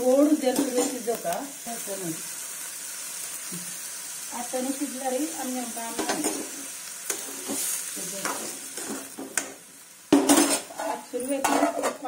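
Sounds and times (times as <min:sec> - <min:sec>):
vegetables sizzling: 0:00.0 - 0:12.0
pan lid clattering: 0:10.2 - 0:12.0
spoon scraping a metal pan: 0:10.2 - 0:12.0.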